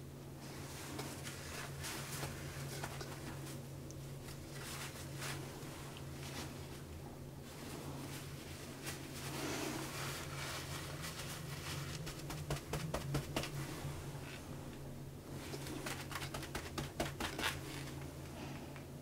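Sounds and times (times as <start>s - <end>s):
steady low hum: 0.0s - 19.0s
tissue paper crinkling: 4.2s - 6.8s, 7.5s - 13.6s, 15.4s - 18.0s.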